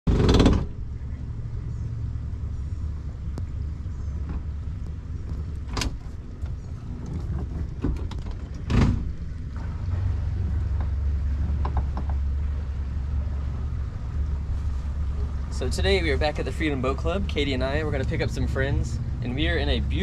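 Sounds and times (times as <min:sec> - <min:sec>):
outboard motor idling: 0:00.1 - 0:20.0
light ticks: 0:03.3 - 0:03.6.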